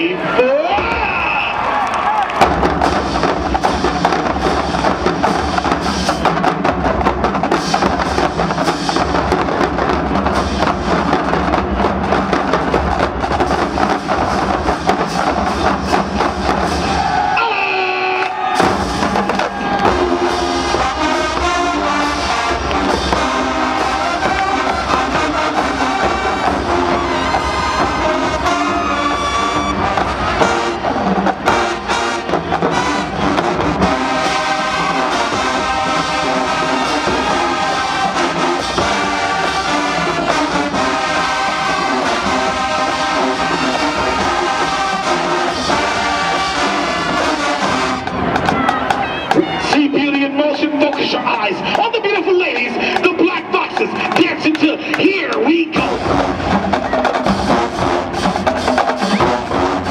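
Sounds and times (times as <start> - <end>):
marching drumline and bass drums: 0.0 - 59.9
brass section melody: 0.1 - 51.7, 52.3 - 59.9.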